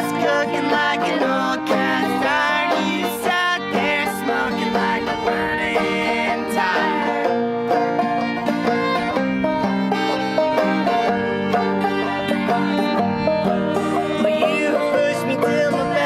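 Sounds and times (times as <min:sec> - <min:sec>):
two voices singing: 0:00.0 - 0:07.5, 0:13.7 - 0:16.0
banjo fiddle and guitar playing: 0:00.0 - 0:16.0.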